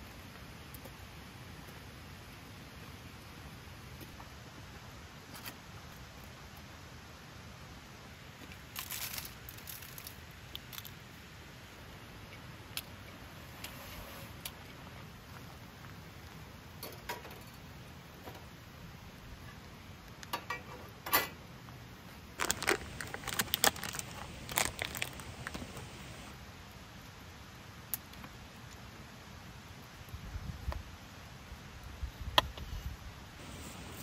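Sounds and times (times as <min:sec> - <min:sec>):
oil crackling and popping: 0:22.4 - 0:26.3.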